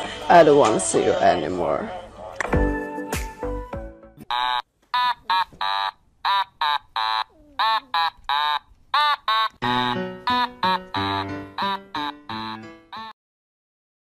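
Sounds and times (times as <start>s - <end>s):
high squeaks rising and falling: 4.2s - 13.1s
plucked string music: 9.6s - 13.0s.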